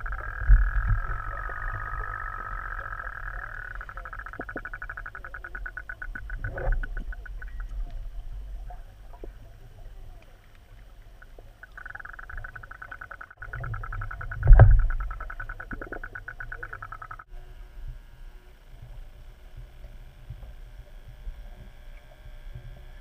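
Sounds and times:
low rumble: 0.0 - 11.6
underwater boat motor buzz: 0.0 - 23.0.

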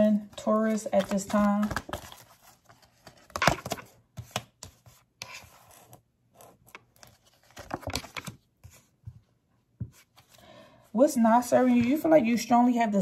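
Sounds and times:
cards being shuffled: 0.3 - 6.0, 6.6 - 8.9.

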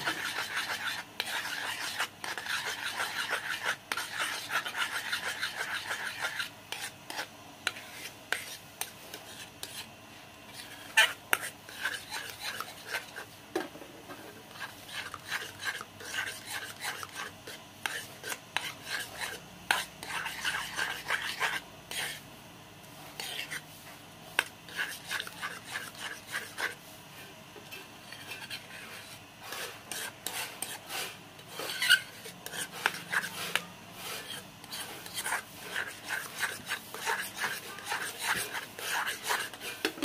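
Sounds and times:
metal spoon scraping a pot: 0.0 - 8.6, 10.6 - 13.2, 14.5 - 22.2, 28.0 - 40.0.

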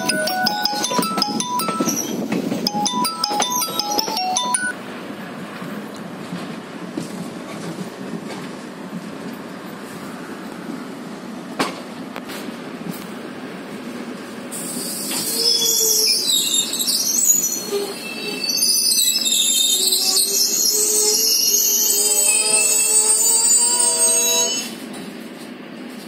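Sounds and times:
train rumbling: 0.0 - 26.0
train wheels squealing on rails: 14.4 - 26.0.

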